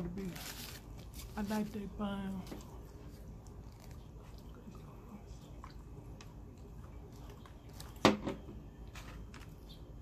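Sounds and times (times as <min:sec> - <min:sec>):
food and paper handling clicks: 0:07.2 - 0:09.8.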